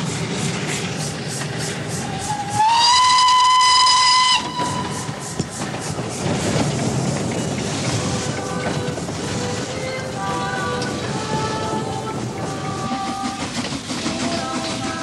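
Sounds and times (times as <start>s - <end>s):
train running rhythmic beat: 0.0s - 15.0s
steam whistle blowing: 2.2s - 5.4s
music: 8.0s - 15.0s.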